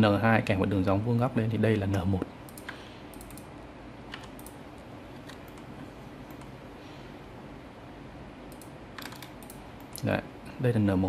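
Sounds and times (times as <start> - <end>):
steady low hum: 0.0 - 11.0
keyboard and mouse clicks: 1.9 - 3.5, 4.1 - 5.7, 6.3 - 6.5, 8.5 - 10.1.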